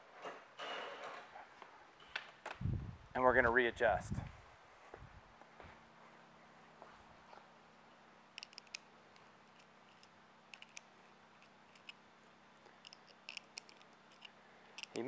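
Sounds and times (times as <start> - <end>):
low steady hum: 1.7 - 15.0
metal hook clicks: 8.4 - 8.8, 9.5 - 10.8, 12.8 - 15.0.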